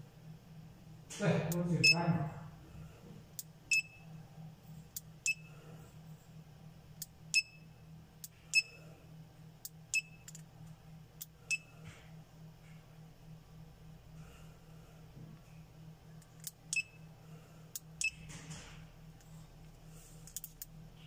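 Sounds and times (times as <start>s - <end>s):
low steady hum: 0.0s - 21.0s.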